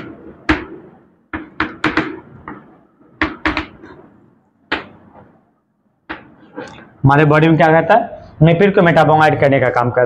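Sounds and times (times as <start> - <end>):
chalk tapping on a blackboard: 0.0 - 4.0.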